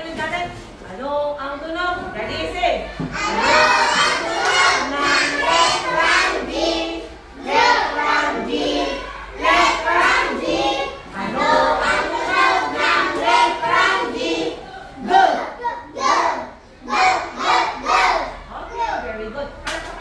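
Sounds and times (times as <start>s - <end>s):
young children singing: 3.0s - 18.5s.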